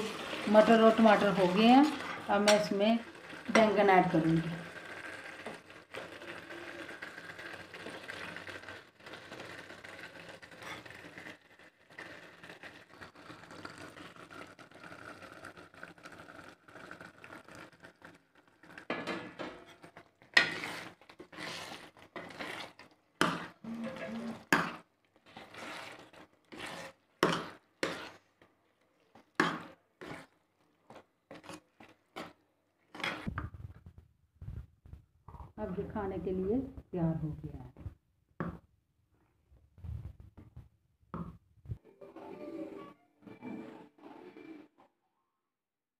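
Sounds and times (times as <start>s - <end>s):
ladle scraping and knocking pan: 0.0s - 2.8s, 18.9s - 28.2s, 29.2s - 33.8s.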